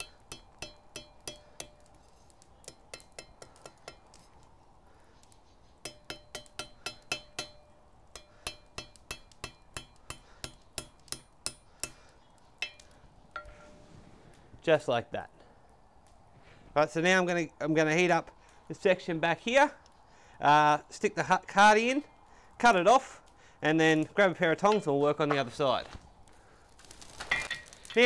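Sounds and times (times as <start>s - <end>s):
hammer clinking on metal: 0.0s - 2.0s, 2.6s - 4.3s, 5.8s - 13.7s.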